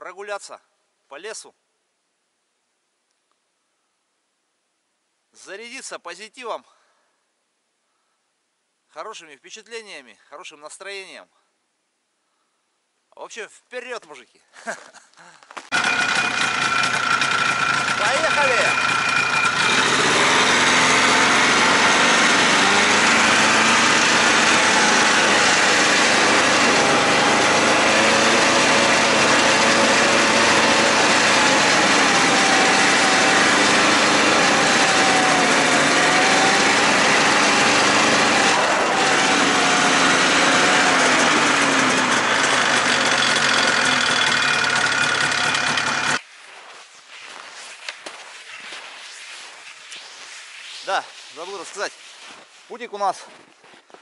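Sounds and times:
snowmobile engine running: 15.7s - 46.2s.

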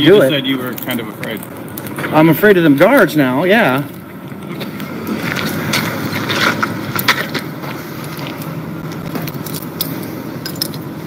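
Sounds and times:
steady outdoor hum: 0.0s - 11.0s
metal gear clicking and jingling: 9.3s - 10.8s.

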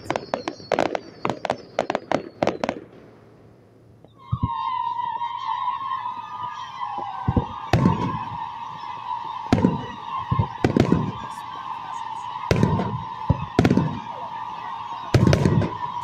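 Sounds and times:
fireworks bursting with echo: 0.0s - 16.0s
wavering high tone: 4.1s - 16.0s.

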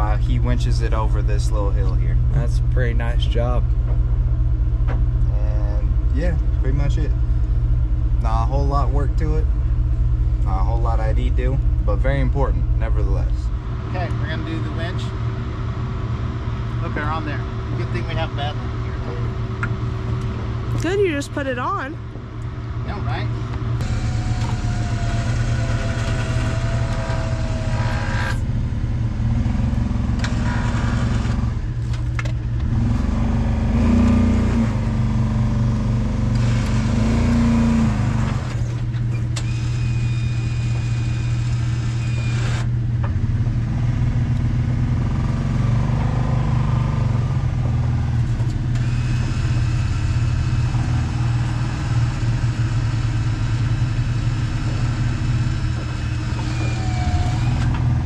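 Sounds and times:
vehicle engine running: 0.0s - 58.0s
electric winch motor hum: 23.8s - 28.4s, 39.2s - 42.7s.

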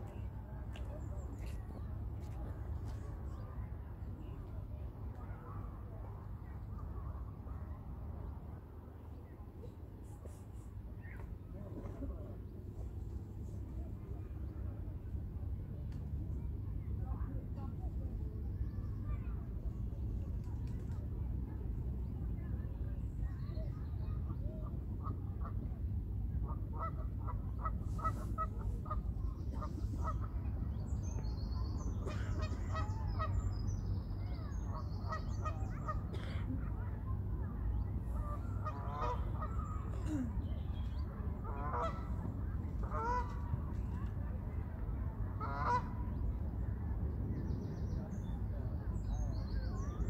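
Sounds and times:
low background rumble: 0.0s - 50.0s
waterbirds calling: 38.2s - 42.1s, 42.8s - 43.3s.

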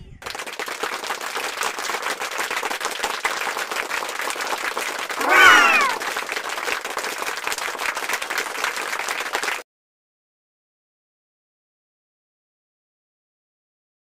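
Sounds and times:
applause: 0.0s - 9.7s
high falling cry: 5.2s - 6.1s.

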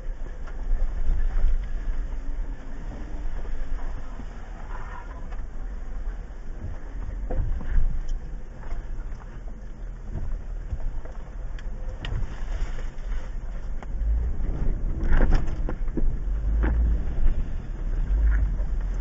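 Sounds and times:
vehicle engine low rumble: 0.0s - 19.0s
knocks and rattles over bumps: 13.6s - 19.0s.

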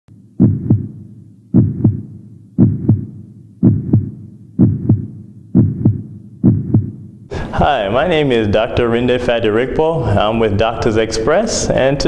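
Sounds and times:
heartbeat thumps: 0.1s - 7.3s.

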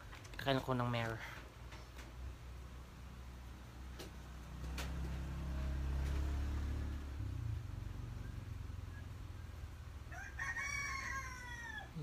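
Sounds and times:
vehicle engine humming: 2.4s - 10.2s
rooster crowing: 10.0s - 12.0s.

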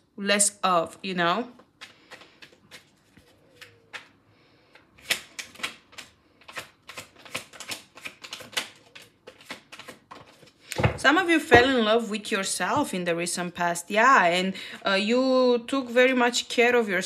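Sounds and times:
cards being shuffled: 1.6s - 10.8s.

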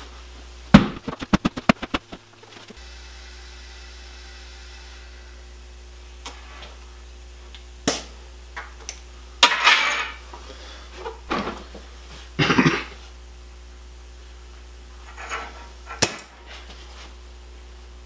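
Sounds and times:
rubbing and knocking of tyre: 0.8s - 2.8s.

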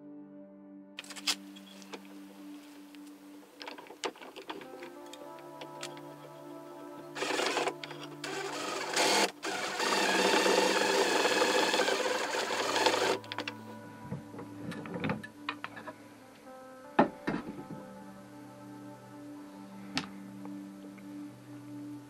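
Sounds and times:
cordless driver running a screw: 7.2s - 13.4s.

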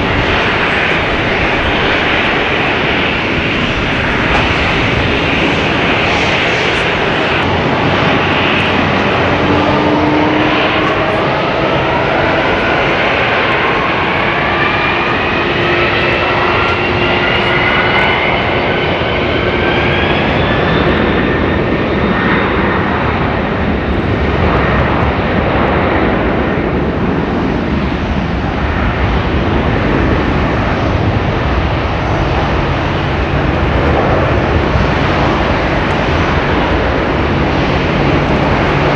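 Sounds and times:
jet engines spooling up: 0.0s - 38.9s.

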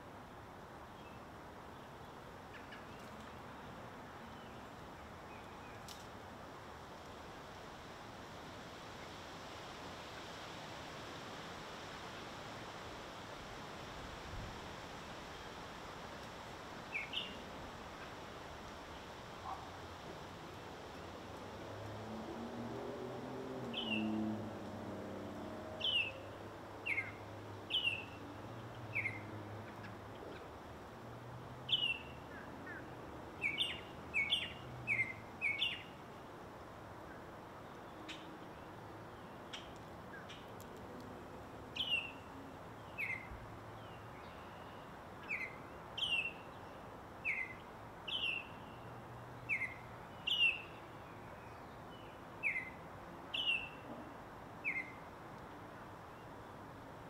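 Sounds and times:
faint steady hiss: 0.0s - 57.0s
songbird calling: 16.9s - 18.2s, 23.7s - 24.3s, 25.8s - 28.3s, 28.9s - 30.5s, 31.7s - 36.0s, 41.7s - 53.9s, 54.6s - 55.0s.

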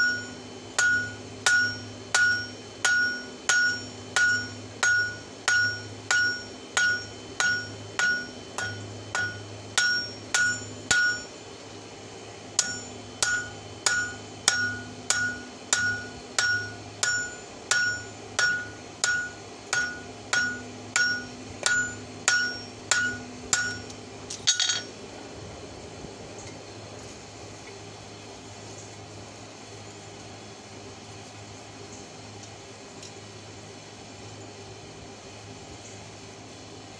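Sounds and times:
hammer striking steel on anvil: 0.0s - 11.3s, 12.6s - 24.9s.

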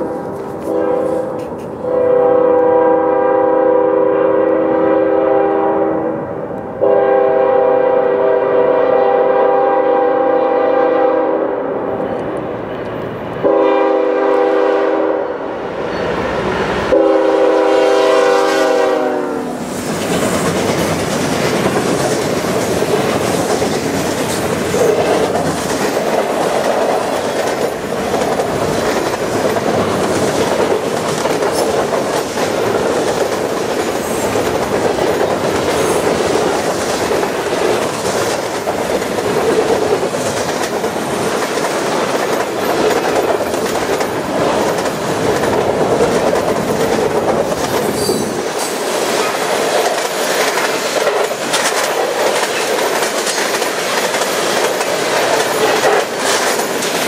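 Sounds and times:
freight train wheel rumble: 0.0s - 57.0s
clickety-clack over rail joints: 0.4s - 1.8s, 19.8s - 57.0s.

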